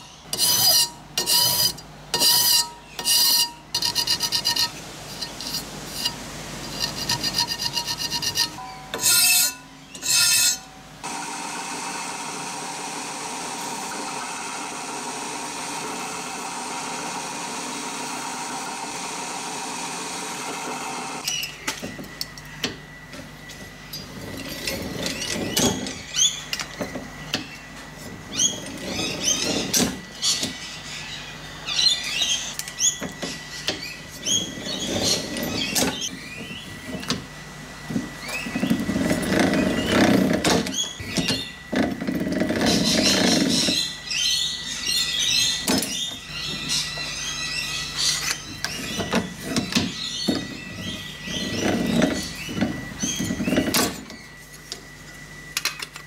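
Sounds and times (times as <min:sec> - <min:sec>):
steady hum: 0:00.0 - 0:56.0
hand file on sheet metal: 0:00.3 - 0:10.6
slip roll squeaking and clicking: 0:06.7 - 0:10.7, 0:24.0 - 0:27.5, 0:28.3 - 0:30.6, 0:32.2 - 0:36.5, 0:38.3 - 0:44.0, 0:45.4 - 0:54.4.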